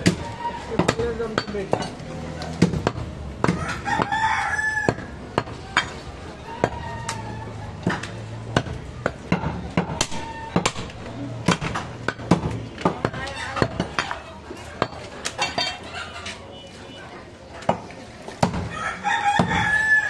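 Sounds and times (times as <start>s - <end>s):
rooster crowing: 3.6s - 5.1s, 18.7s - 20.0s.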